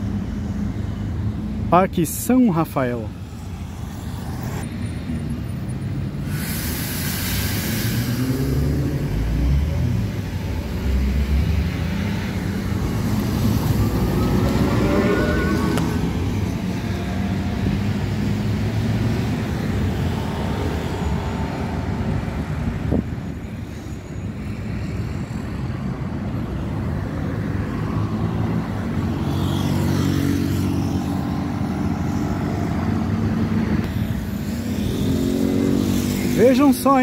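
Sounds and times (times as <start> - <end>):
road traffic passing: 0.0 - 37.0
rising motor whine: 3.4 - 5.2, 12.3 - 17.9.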